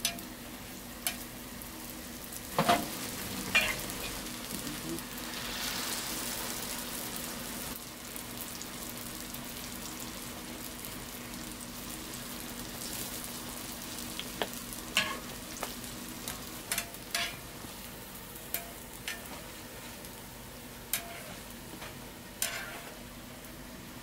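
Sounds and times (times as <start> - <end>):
metal utensils clinking on fryer: 0.0 - 0.3, 2.5 - 4.2, 14.9 - 15.3, 16.2 - 17.5, 18.5 - 19.5, 20.9 - 23.0
oil sizzling in fryer: 0.0 - 24.0.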